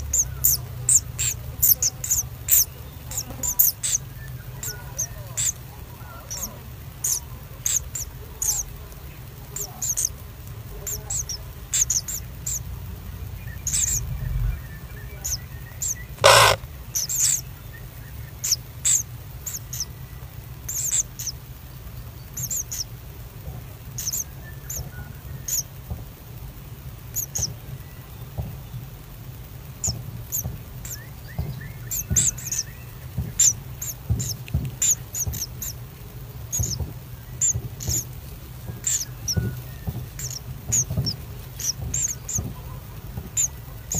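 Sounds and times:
high bird chirps: 0:13.4 - 0:17.5, 0:38.7 - 0:42.5
harsh bird call: 0:13.5 - 0:17.4.

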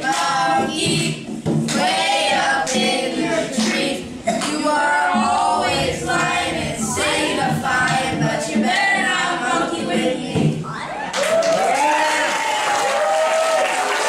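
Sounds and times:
group singing a cappella: 0:00.0 - 0:10.6
applause: 0:11.1 - 0:14.0.

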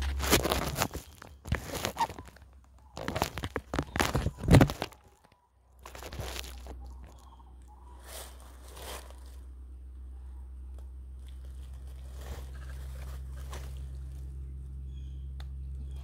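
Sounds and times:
plastic bags and leaves rustling: 0:00.0 - 0:09.5, 0:11.2 - 0:14.5
steady low rumble: 0:05.7 - 0:16.0.

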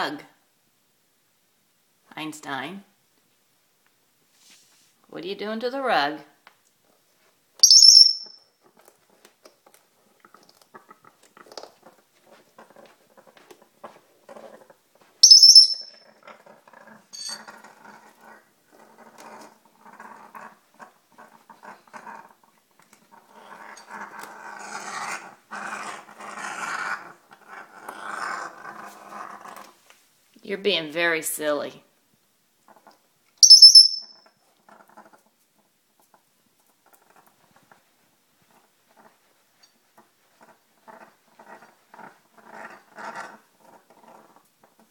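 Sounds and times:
parrot high squeaks: 0:07.6 - 0:08.4, 0:15.2 - 0:16.0, 0:33.4 - 0:34.2
parrot growling: 0:16.1 - 0:29.8, 0:40.4 - 0:44.8.

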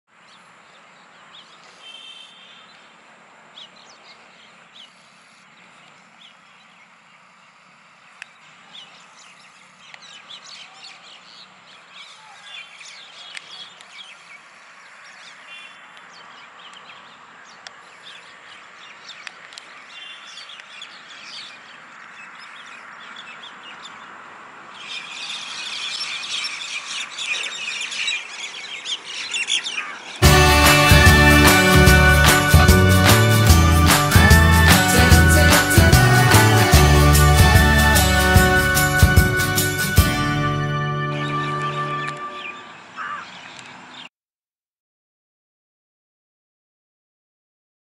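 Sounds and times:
flock of mynas calling: 0:24.8 - 0:43.4.

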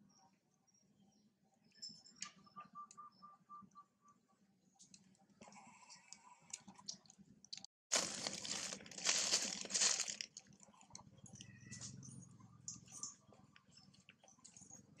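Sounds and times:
crackly crunching rustle: 0:06.0 - 0:11.1.

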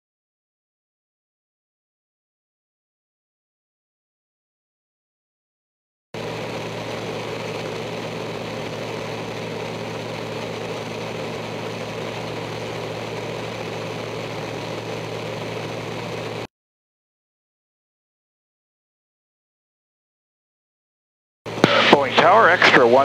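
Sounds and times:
propeller plane engine drone: 0:06.2 - 0:16.5, 0:21.5 - 0:23.0.

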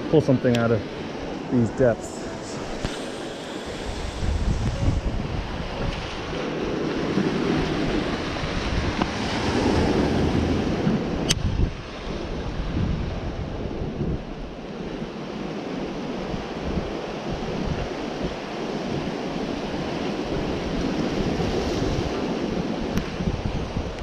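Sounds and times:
wind buffeting microphone: 0:00.0 - 0:24.0
sharp click: 0:11.2 - 0:11.4.

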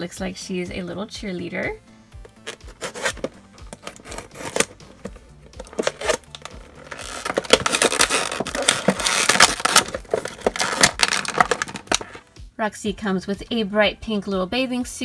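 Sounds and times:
knife and cardboard packaging handled: 0:02.3 - 0:12.2
plastic bag crinkling: 0:02.3 - 0:12.2.

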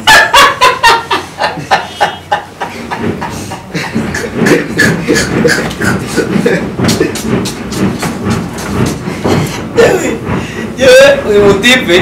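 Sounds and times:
man laughing hard: 0:00.0 - 0:07.2.

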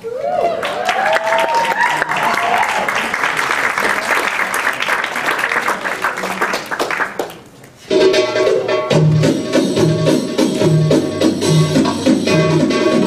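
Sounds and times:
audience applauding: 0:00.4 - 0:07.6
belly dance music: 0:07.9 - 0:13.0.

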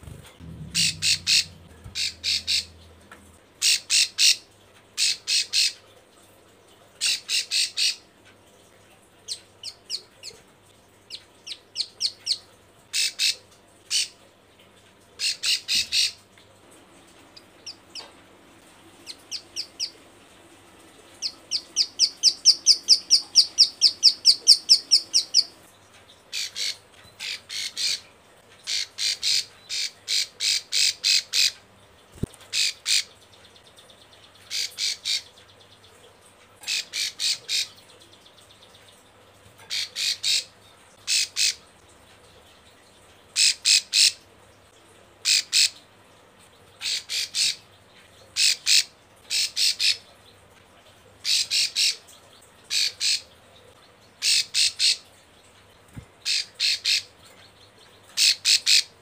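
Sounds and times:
small bird rapid clicking call: 0:21.1 - 0:33.6.

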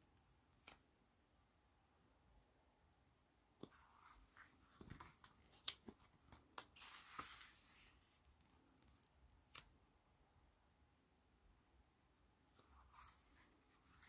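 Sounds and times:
page turning rustle: 0:04.0 - 0:09.6.

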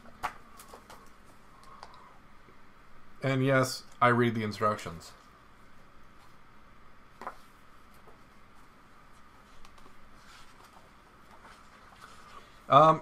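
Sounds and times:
paper pages turning: 0:09.4 - 0:12.5.

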